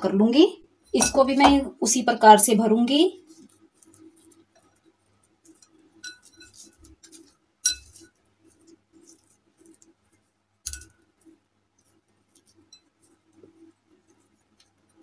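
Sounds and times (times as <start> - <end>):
clinks on glass bowl: 6.0 - 6.6, 7.6 - 8.0.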